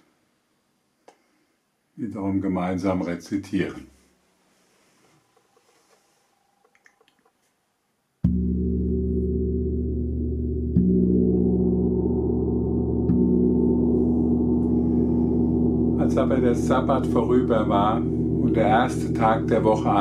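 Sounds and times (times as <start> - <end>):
gong struck with mallet: 8.3 - 20.0.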